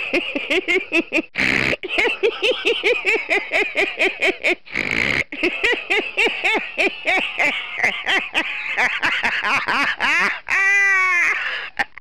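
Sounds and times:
person laughing hard: 0.0 - 12.0
wheezing in-breath: 4.6 - 5.4, 11.3 - 11.9.

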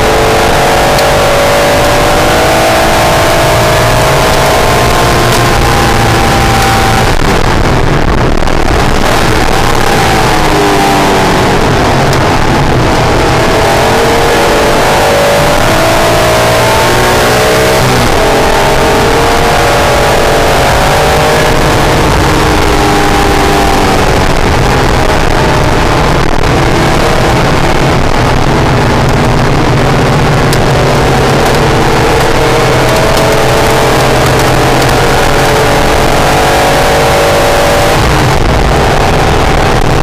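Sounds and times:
car engine accelerating and shifting: 0.0 - 40.0
wind and road noise: 0.0 - 40.0.

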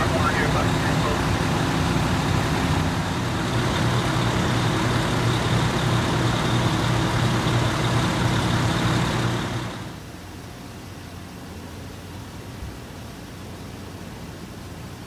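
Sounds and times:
fire engine humming: 0.0 - 10.0.

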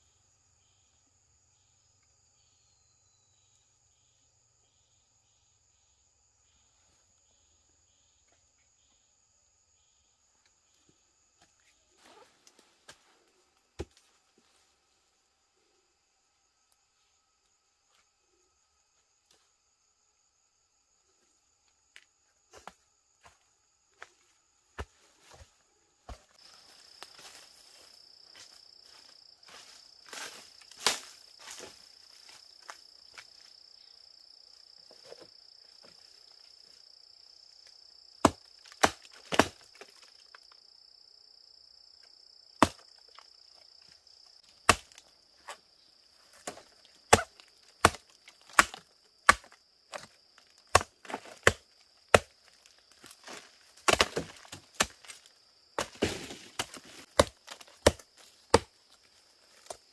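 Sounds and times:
high insect drone: 0.0 - 12.6, 14.6 - 59.9
blade chopping wood: 38.2 - 39.9, 42.6 - 42.8, 44.6 - 45.1, 46.4 - 52.4, 53.2 - 58.7.

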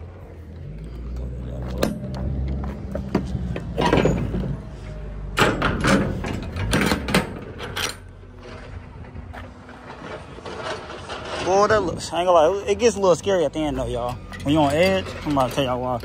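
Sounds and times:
low engine hum: 0.0 - 15.1
metal trailer door clanking: 1.7 - 8.8, 13.6 - 16.0.

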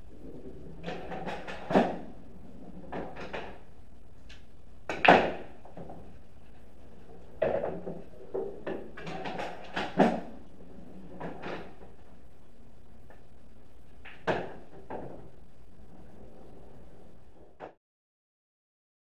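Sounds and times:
pool balls knocking: 0.4 - 3.7, 4.9 - 6.2, 6.9 - 12.0, 14.0 - 15.3
cue striking pool balls: 4.9 - 6.1, 14.0 - 15.3.

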